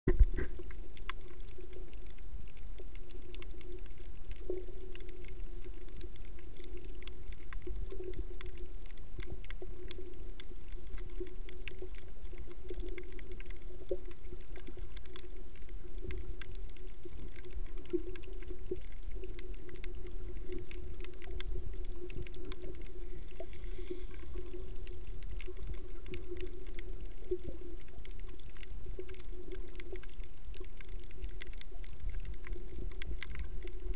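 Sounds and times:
muffled underwater rumble and hum: 0.1s - 1.0s
faint crackling clicks: 0.1s - 33.9s.

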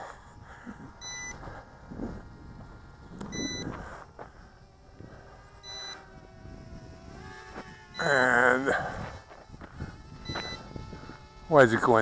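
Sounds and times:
remote controller high beeps: 1.0s - 1.4s, 5.6s - 6.0s, 10.3s - 10.6s.

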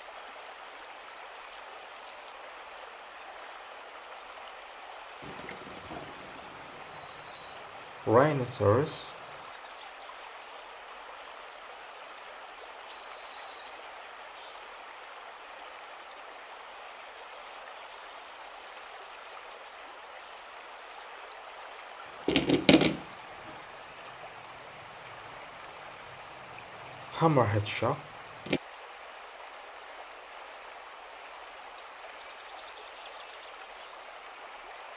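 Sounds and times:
small birds chirping: 4.3s - 9.7s, 22.2s - 28.6s
steady hiss: 5.0s - 9.7s, 22.0s - 31.6s.

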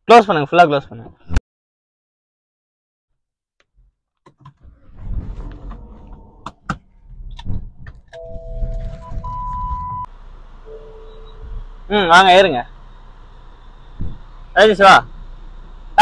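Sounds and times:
low street noise rumble: 4.7s - 16.0s
two-note electronic chime: 10.7s - 11.4s.

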